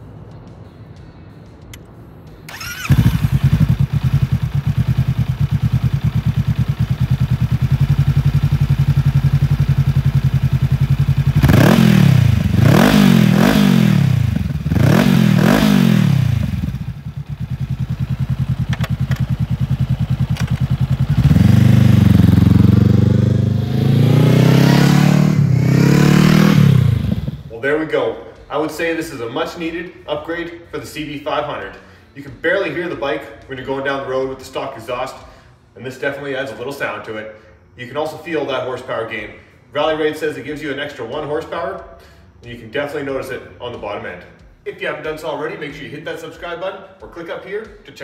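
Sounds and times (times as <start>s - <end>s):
motorcycle engine revving: 2.5s - 27.5s.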